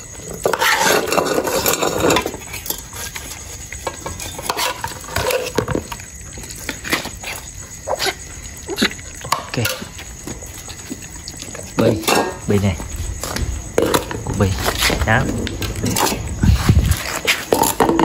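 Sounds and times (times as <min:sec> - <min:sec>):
metal spoon scraping a pot: 0:00.3 - 0:05.9
metal pots clinking: 0:11.7 - 0:12.7.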